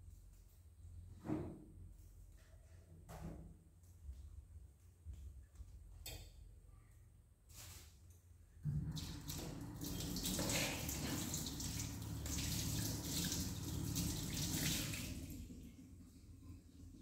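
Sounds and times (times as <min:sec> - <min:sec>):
water rushing and splashing: 0:08.9 - 0:15.6.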